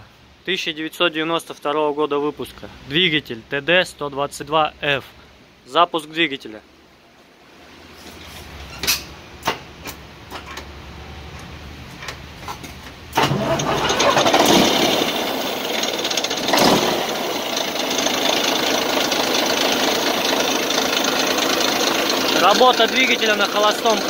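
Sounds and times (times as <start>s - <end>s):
diesel engine cranking: 12.5s - 24.0s
diesel engine running and revving: 13.2s - 24.0s.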